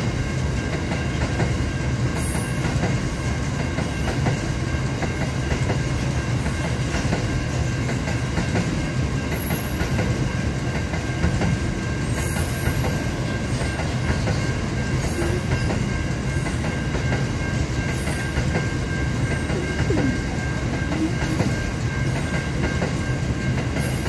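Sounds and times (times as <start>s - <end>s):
freight train rumbling past: 0.0s - 24.0s.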